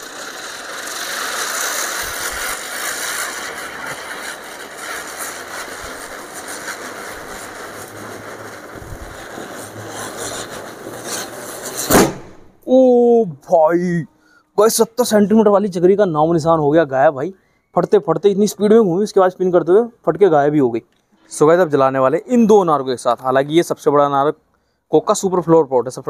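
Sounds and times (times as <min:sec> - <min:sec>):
firework spinner hissing whoosh: 0:00.0 - 0:12.7
firework crackles: 0:00.0 - 0:13.1.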